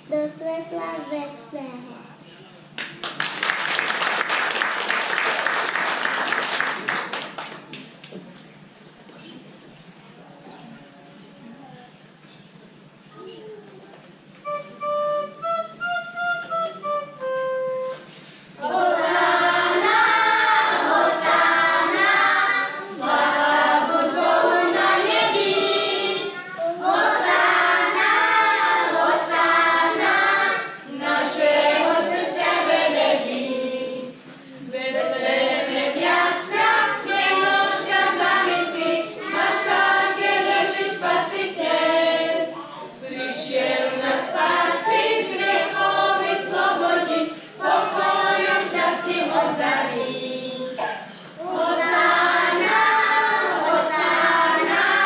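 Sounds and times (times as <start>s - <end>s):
children's choir singing: 17.7s - 55.0s.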